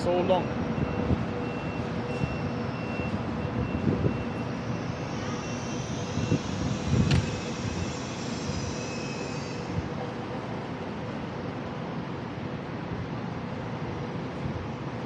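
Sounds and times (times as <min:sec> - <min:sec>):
electric train humming: 0:00.0 - 0:15.0
faint high beep: 0:00.8 - 0:06.4.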